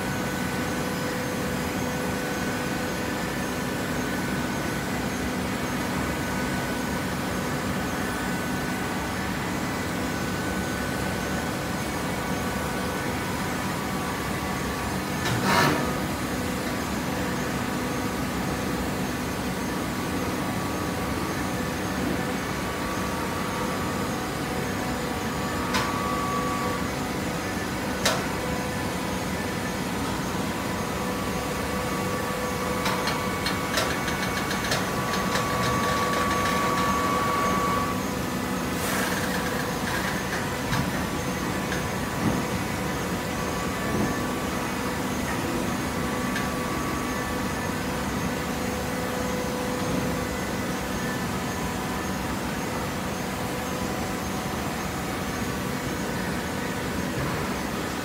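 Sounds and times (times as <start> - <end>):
machine whine: 0.0 - 58.0
hydraulic baler humming: 18.9 - 58.0.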